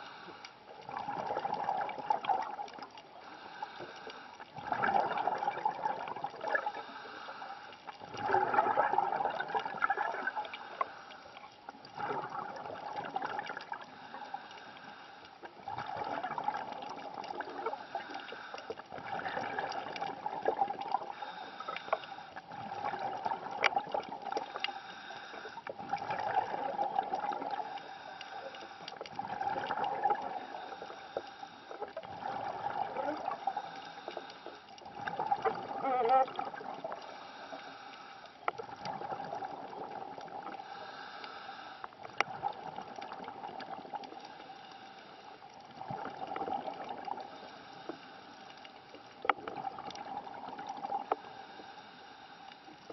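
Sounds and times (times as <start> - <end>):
underwater air bubbles gurgling: 0.0 - 52.9
faint clicks: 10.5 - 12.0, 16.5 - 32.1, 32.8 - 52.9
water hiss: 36.8 - 38.4, 40.4 - 42.2.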